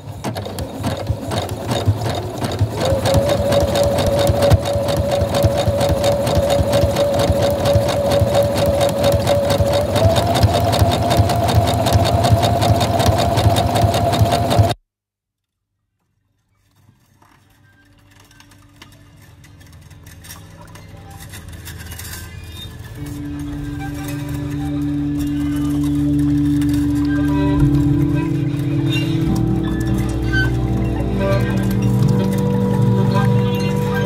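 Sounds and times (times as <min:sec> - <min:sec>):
sewing machine stitching: 0:00.0 - 0:14.8.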